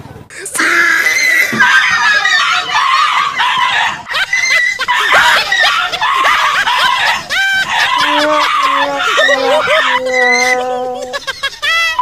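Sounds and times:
high voices shrieking and laughing: 0.4s - 12.0s.

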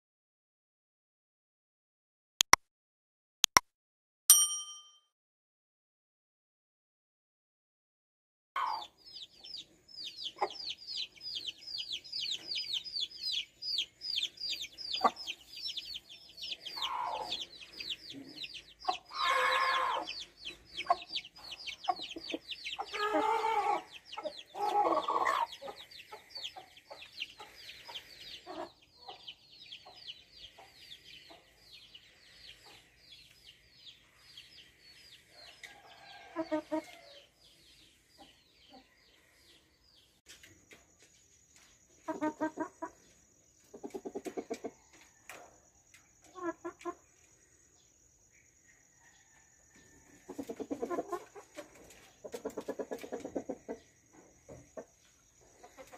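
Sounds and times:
chickens clucking and squawking: 8.6s - 40.0s, 41.9s - 47.8s, 48.8s - 55.9s.

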